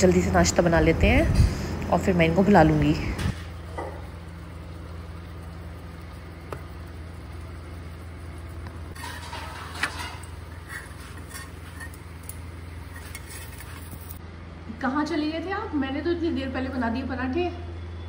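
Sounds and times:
steady low hum: 0.0 - 18.0
metal spatula scraping on iron pan: 8.9 - 14.2.

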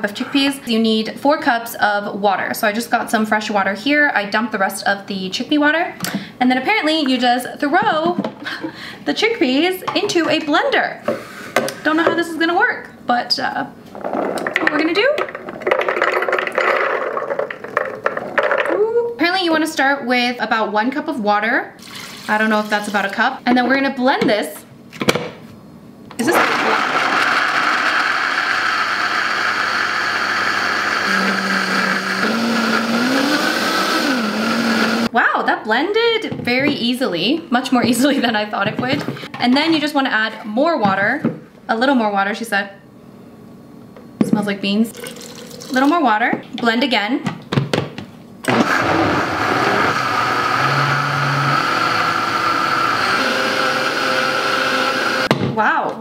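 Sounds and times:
blender whirring: 26.2 - 35.1, 48.4 - 55.3.

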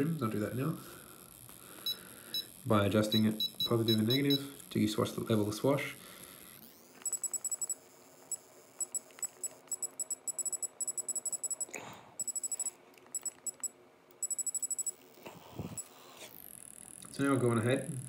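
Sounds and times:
short high electronic beeps: 1.9 - 4.5.

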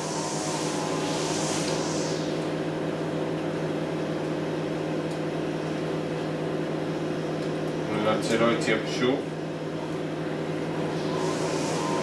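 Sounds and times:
soft hiss of liquid: 0.0 - 2.7
fan motor humming: 0.0 - 12.0.

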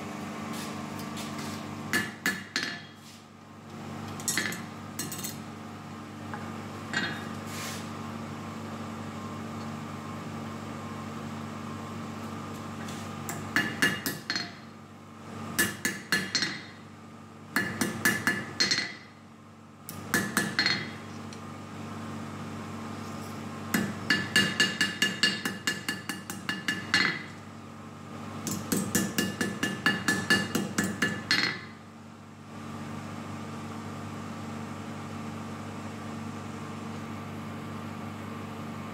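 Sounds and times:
steady low hum: 0.0 - 38.9
hammer striking steel on anvil: 1.9 - 3.0, 13.3 - 14.7, 15.6 - 16.8, 17.6 - 19.2, 19.9 - 21.0, 23.8 - 27.4, 28.5 - 31.7.

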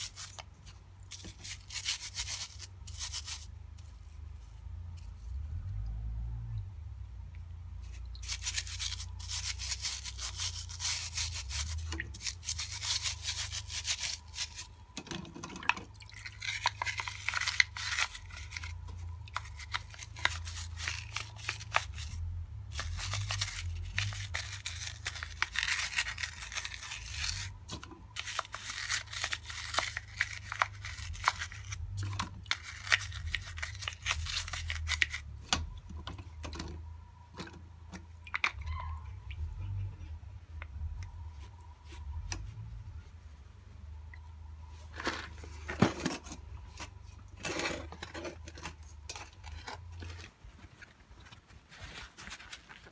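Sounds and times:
brush scrubbing plastic parts: 0.0 - 5.4, 7.8 - 36.8.

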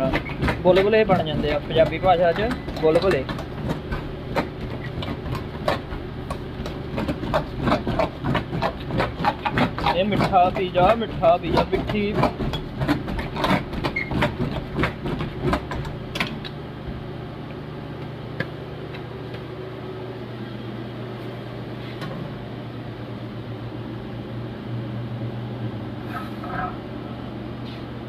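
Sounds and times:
dough docker clicking on dough: 0.0 - 16.6
low hum of kitchen machinery: 0.0 - 28.0.

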